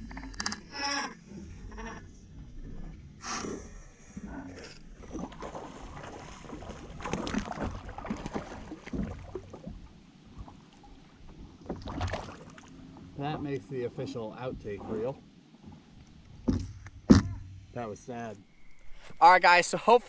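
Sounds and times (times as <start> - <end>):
water splashing and knocking: 5.0 - 13.6, 14.4 - 17.6.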